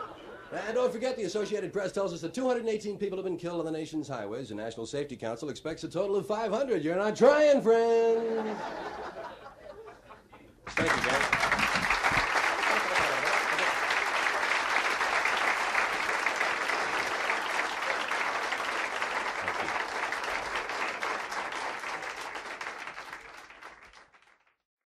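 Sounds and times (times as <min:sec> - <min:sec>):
audience applauding: 0:10.6 - 0:24.6.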